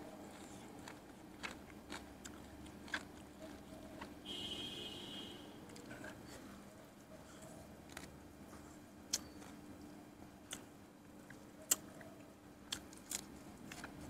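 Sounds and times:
mouth chewing food: 0.0 - 4.3, 7.2 - 14.0
faint steady hum: 0.0 - 14.0.

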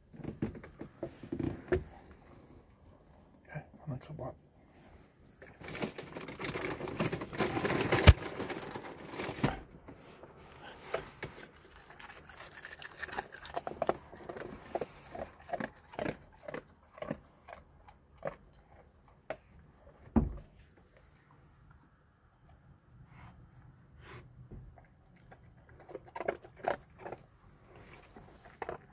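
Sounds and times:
dog crunching dry kibble: 5.4 - 9.7, 10.6 - 20.0, 25.0 - 28.9.

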